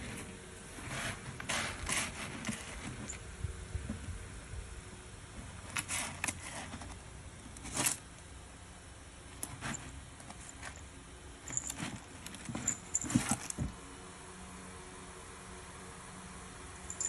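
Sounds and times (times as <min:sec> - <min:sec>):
kitten scratching in cat litter: 0:00.0 - 0:04.0, 0:05.4 - 0:08.2, 0:09.3 - 0:13.8.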